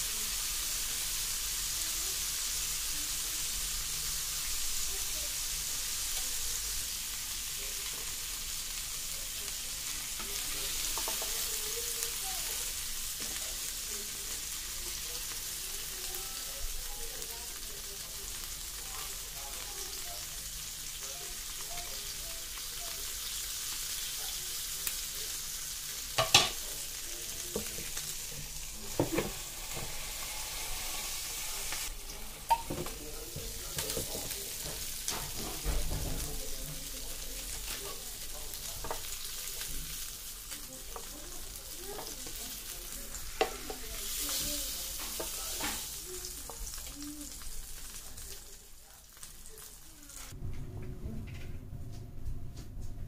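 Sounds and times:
burger patties sizzling on grill: 0.0 - 50.4.

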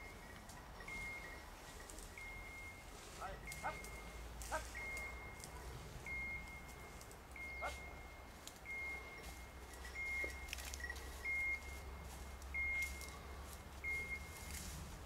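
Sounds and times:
high electronic beeps: 2.2 - 13.2.

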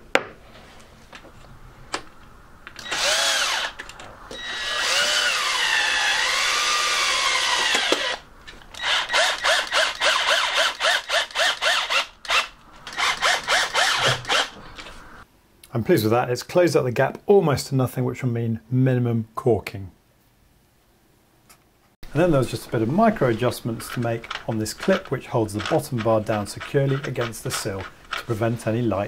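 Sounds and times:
cordless drill driving screws: 2.8 - 8.2, 8.8 - 14.6.

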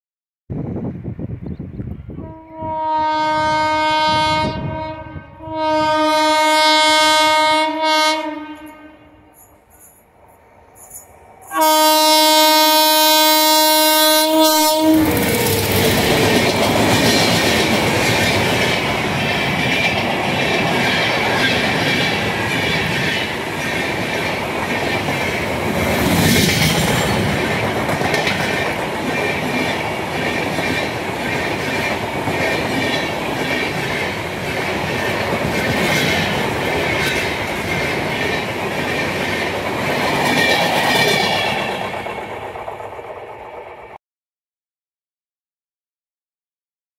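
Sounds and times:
locomotive horn: 2.2 - 9.4, 11.5 - 16.4
train wheels clicking over rail joints: 15.0 - 44.0.

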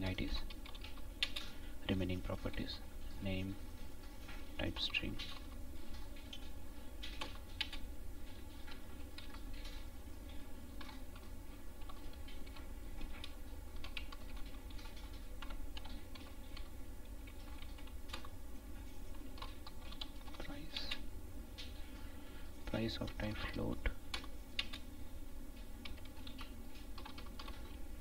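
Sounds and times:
computer keyboard typing: 0.0 - 3.5, 4.6 - 7.9, 8.5 - 9.9, 10.7 - 18.4, 19.1 - 21.0, 22.8 - 24.9, 25.8 - 27.8.

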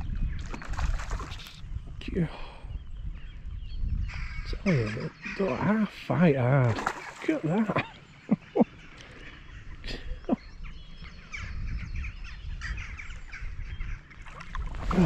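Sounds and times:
ducks calling: 4.1 - 15.0.

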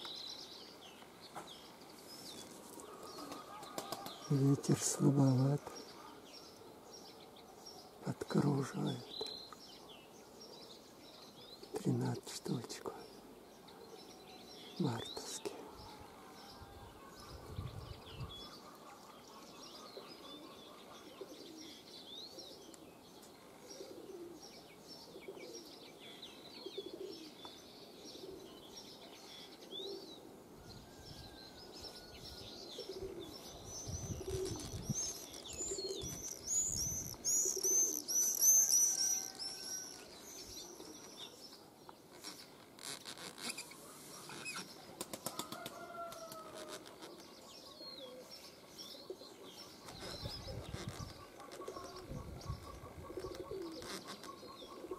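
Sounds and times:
pigeons cooing: 2.7 - 6.2, 15.6 - 25.8, 26.6 - 27.4, 28.0 - 28.8, 32.6 - 39.6, 47.1 - 54.9
small bird chirping: 32.8 - 44.9, 46.6 - 54.9.

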